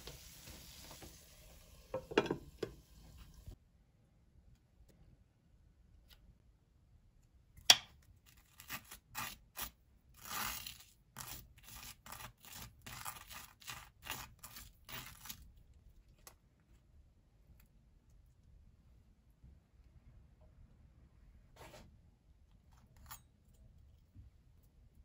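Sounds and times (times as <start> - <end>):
scratchy tearing strokes: 8.3 - 15.5.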